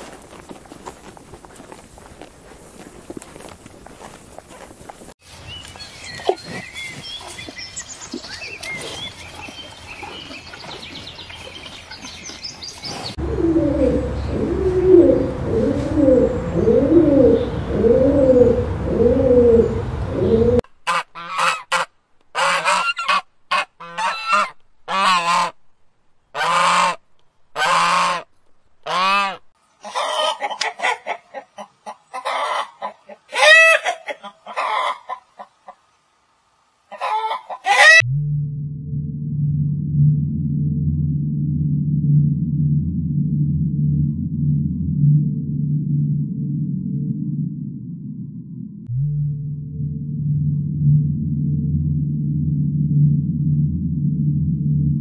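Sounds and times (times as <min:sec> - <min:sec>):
geese honking loudly: 0:20.8 - 0:25.5, 0:26.4 - 0:27.0, 0:27.6 - 0:30.4.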